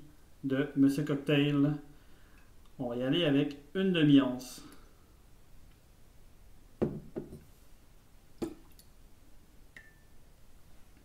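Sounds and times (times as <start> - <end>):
faint metallic ring: 9.8 - 10.2.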